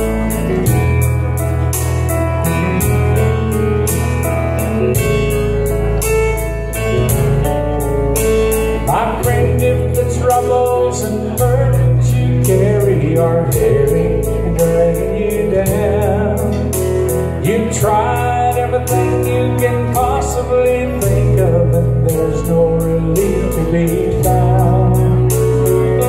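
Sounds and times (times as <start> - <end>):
steady beat: 0.0 - 9.9
electronic keyboard gospel music: 0.0 - 26.0.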